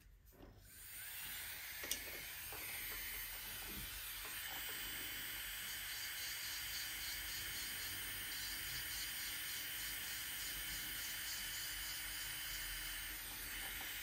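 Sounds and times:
electric manicure machine hissing: 0.6 - 14.0.

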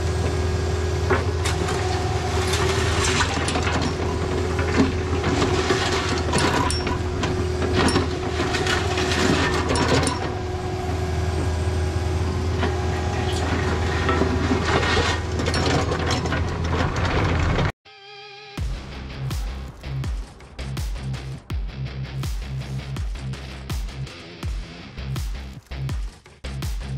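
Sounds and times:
excavator diesel engine running: 0.0 - 17.7
bucket scraping gravelly dirt: 1.6 - 10.4, 12.8 - 17.6.

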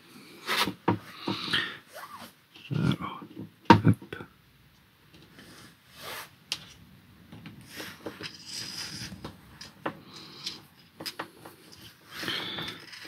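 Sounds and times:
scraping and rustling: 7.4 - 13.0.

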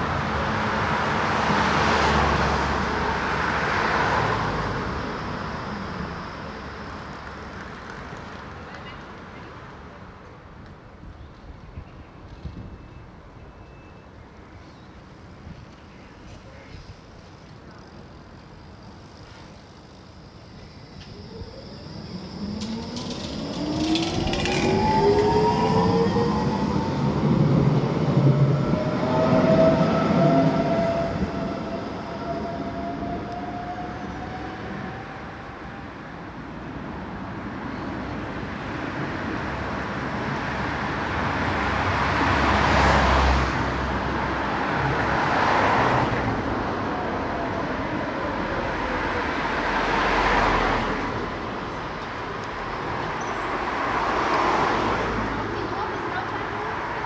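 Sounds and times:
tram wheels rumbling on rails: 0.0 - 13.5, 15.0 - 57.0
tram motors whining: 15.9 - 38.4.

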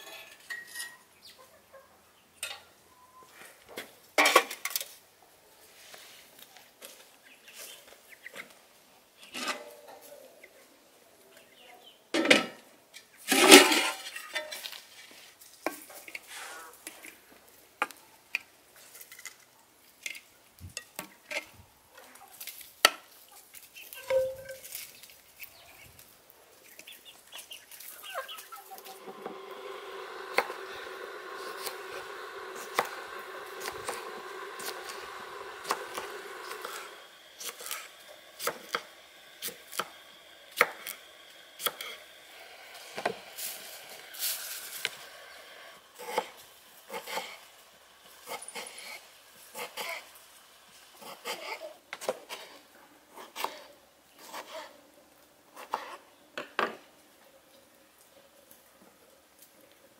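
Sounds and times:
metal cookware clanging: 0.0 - 1.0, 13.3 - 14.6, 24.0 - 24.6.

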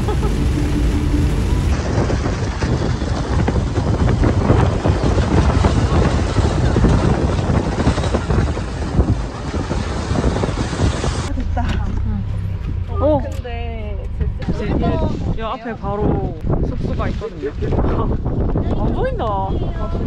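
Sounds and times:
vehicle cabin rumble: 0.0 - 4.3, 11.0 - 15.4
wind buffeting microphone: 0.0 - 20.0.

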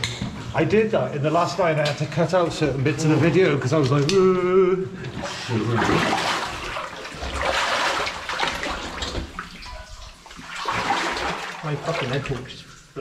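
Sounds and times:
water sloshing and splashing: 5.0 - 13.0.

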